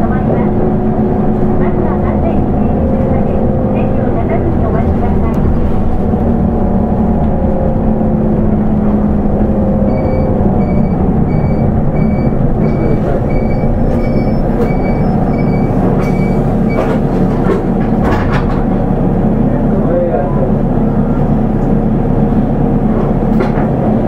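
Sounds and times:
bus engine and road drone: 0:00.0 - 0:24.0
high electronic beep: 0:09.8 - 0:16.9.

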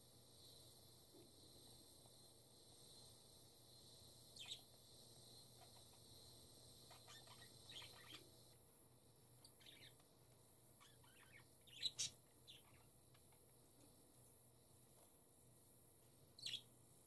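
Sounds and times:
budgerigars chirping: 0:04.4 - 0:04.6, 0:06.9 - 0:08.2, 0:09.6 - 0:10.0, 0:10.8 - 0:12.8.

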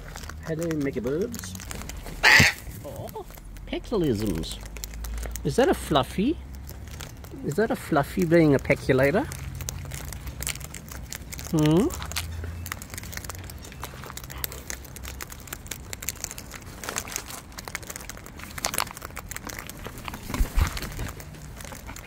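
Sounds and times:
beaks cracking seeds: 0:00.0 - 0:22.0.

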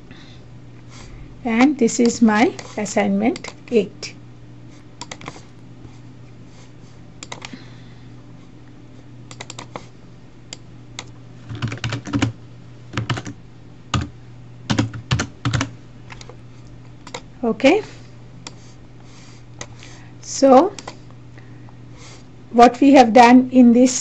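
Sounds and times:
steady low hum: 0:00.0 - 0:24.0
typing on a keyboard: 0:05.0 - 0:05.4, 0:07.2 - 0:07.5, 0:09.3 - 0:09.8, 0:11.0 - 0:12.4, 0:13.0 - 0:14.1, 0:14.7 - 0:16.3.

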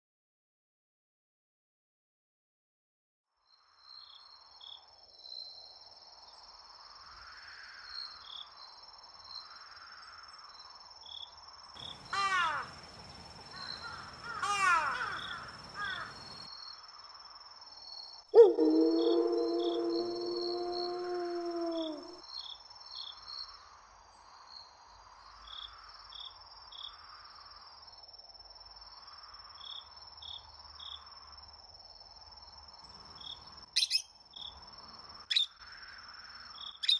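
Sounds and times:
insects chirping: 0:09.0 - 0:17.7, 0:18.4 - 0:22.8
harsh bird caws: 0:12.2 - 0:12.7, 0:13.7 - 0:16.2.

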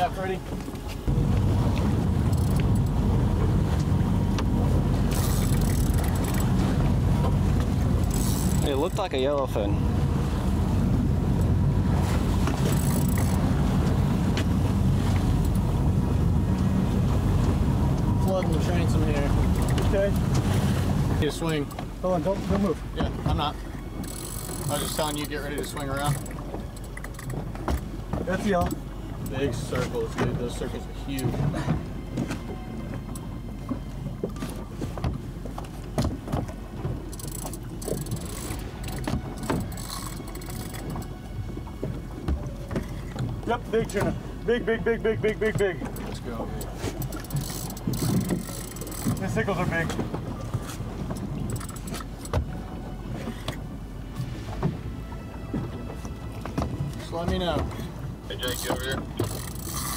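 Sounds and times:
boat engine humming: 0:00.0 - 0:59.9
water noise: 0:00.0 - 0:59.9
wind: 0:00.0 - 0:59.9.

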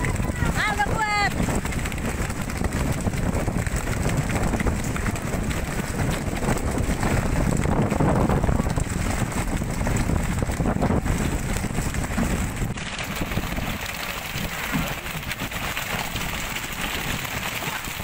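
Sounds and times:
boat engine rumble: 0:00.0 - 0:18.0
rushing splashing water: 0:00.0 - 0:18.0
wind buffeting microphone: 0:00.0 - 0:18.0.

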